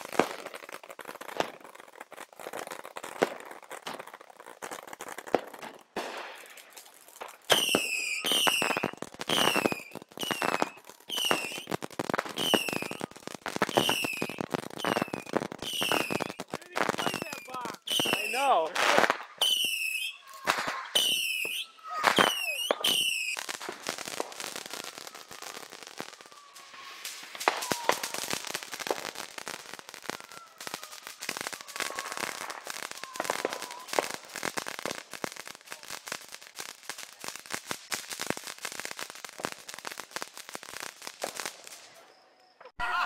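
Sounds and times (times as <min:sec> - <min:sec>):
fireworks crackling and popping: 0:00.0 - 0:43.0
fireworks whistling: 0:00.0 - 0:43.0.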